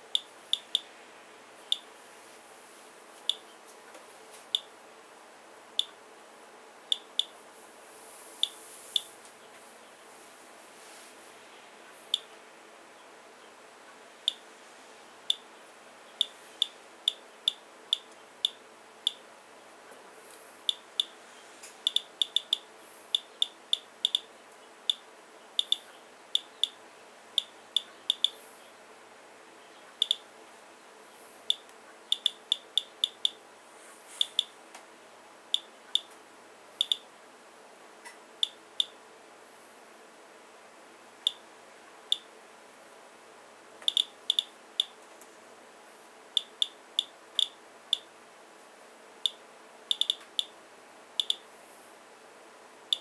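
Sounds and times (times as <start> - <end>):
geiger counter beeps: 0.1 - 0.8, 21.9 - 22.6, 25.6 - 25.8, 27.4 - 28.3, 30.0 - 30.2, 31.5 - 33.4, 49.3 - 50.2.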